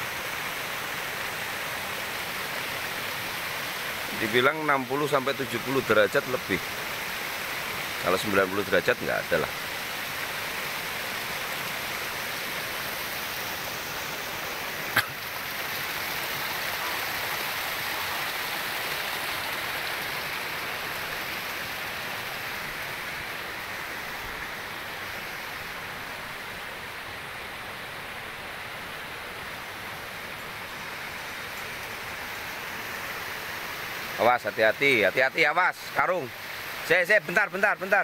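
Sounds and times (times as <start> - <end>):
river water rushing: 0.0 - 38.0.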